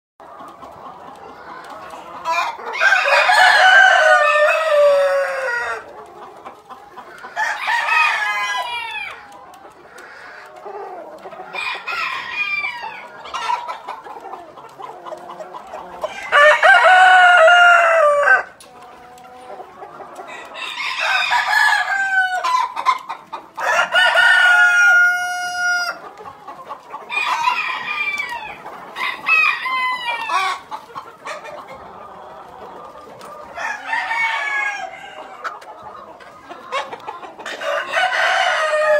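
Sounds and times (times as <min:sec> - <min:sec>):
hens clucking: 0:00.2 - 0:38.9
roosters crowing: 0:02.3 - 0:06.0, 0:07.2 - 0:09.3, 0:10.0 - 0:13.6, 0:15.8 - 0:18.6, 0:20.3 - 0:22.8, 0:23.5 - 0:26.0, 0:27.1 - 0:30.8, 0:33.4 - 0:35.5, 0:37.4 - 0:38.9.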